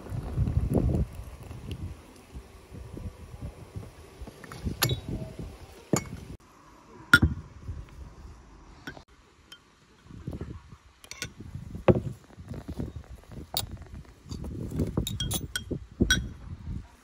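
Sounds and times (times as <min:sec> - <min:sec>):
metal spoon clinking against glass: 0:15.0 - 0:16.3.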